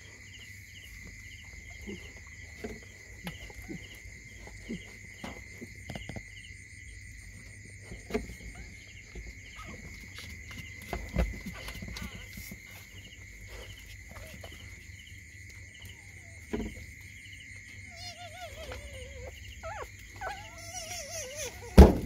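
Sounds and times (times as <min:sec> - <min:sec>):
crickets chirping: 0:00.0 - 0:22.0
high insect drone: 0:00.0 - 0:22.0
puppy whimpering: 0:17.8 - 0:22.0.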